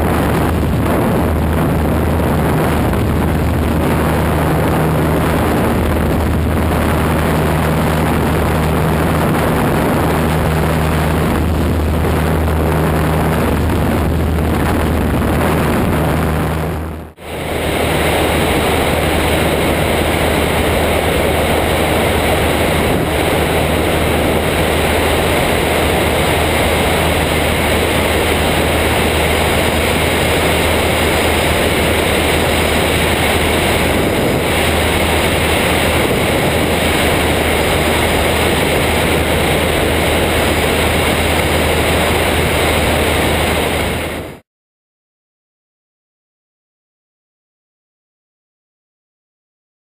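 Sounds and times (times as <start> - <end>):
propeller plane engine drone: 0.0 - 44.4
wind rush on microphone: 0.0 - 44.4.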